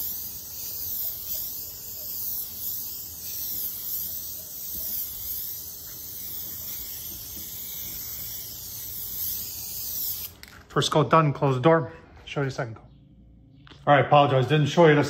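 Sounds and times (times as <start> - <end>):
aerosol can spraying: 0.0 - 10.5.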